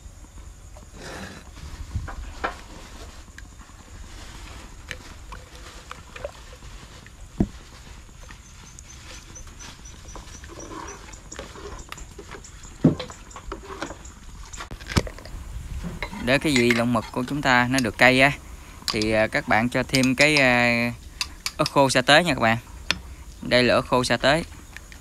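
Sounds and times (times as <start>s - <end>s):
metal knocking on pot rim: 16.0s - 18.1s, 19.8s - 20.6s, 21.2s - 21.8s
metal spoon scraping a jar: 16.0s - 18.3s, 18.9s - 21.8s.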